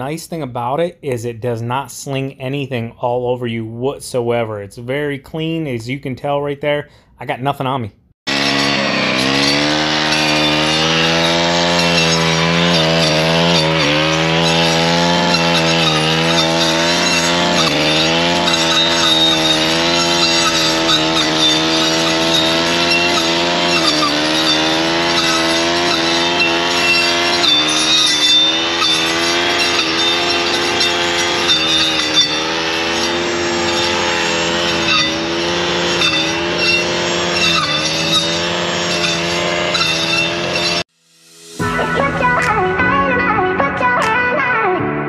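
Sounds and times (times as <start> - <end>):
brush cutter engine at high revs: 8.3 - 40.9.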